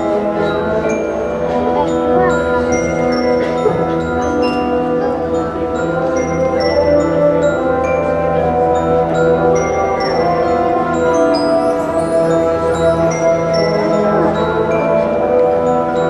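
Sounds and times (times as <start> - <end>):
mallet percussion and bell notes: 0.0 - 16.0.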